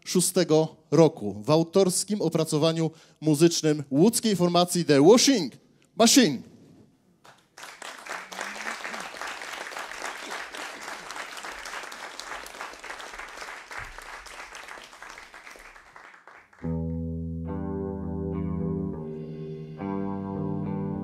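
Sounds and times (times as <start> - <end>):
audience applauding: 7.2 - 16.7
band playing: 16.6 - 21.0.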